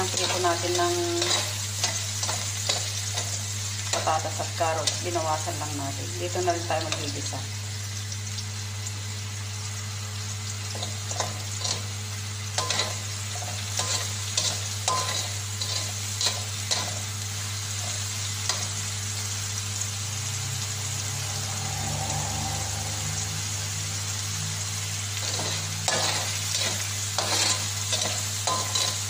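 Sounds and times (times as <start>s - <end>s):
spatula scraping and tapping wok: 0.0s - 5.0s, 10.7s - 11.9s, 12.5s - 17.1s, 25.2s - 29.0s
onion sizzling in hot oil: 0.0s - 29.0s
low hum: 9.0s - 26.8s.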